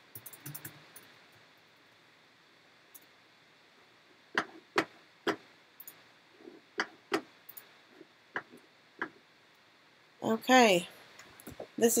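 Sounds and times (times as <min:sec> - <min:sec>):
computer mouse clicks: 0:00.1 - 0:00.8, 0:05.3 - 0:06.0, 0:06.8 - 0:07.7.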